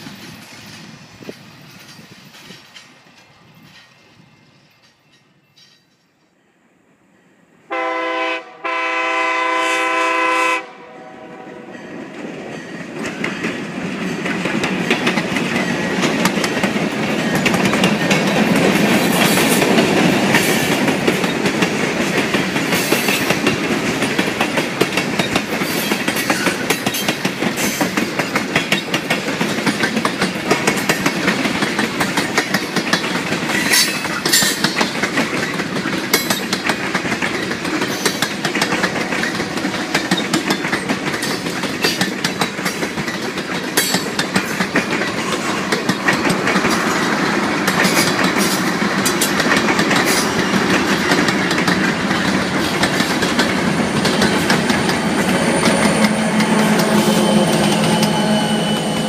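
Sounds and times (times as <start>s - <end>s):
wheels clacking over rail joints: 0.0s - 6.1s, 11.8s - 59.0s
train rumbling past: 0.0s - 59.0s
locomotive air horn: 7.7s - 11.7s, 54.7s - 59.0s.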